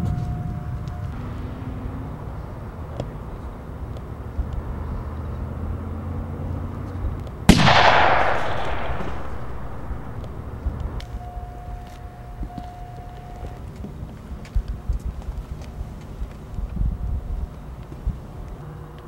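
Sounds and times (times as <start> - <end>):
low steady rumble: 0.0 - 19.0
gunshot with echo: 7.5 - 10.8.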